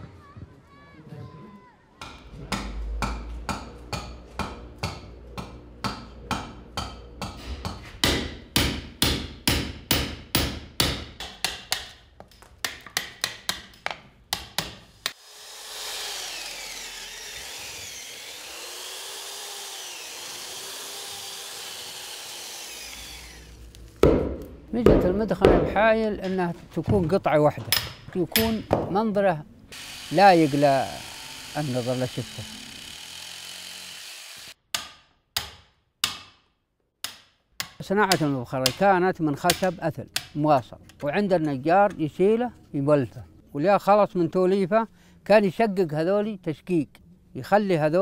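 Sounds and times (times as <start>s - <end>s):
chisel hammered into wood: 8.0s - 12.0s, 12.6s - 13.7s, 14.3s - 15.2s, 24.0s - 25.8s, 34.7s - 36.4s, 37.0s - 38.8s
electric drill boring into wood: 15.1s - 23.8s, 29.7s - 34.6s.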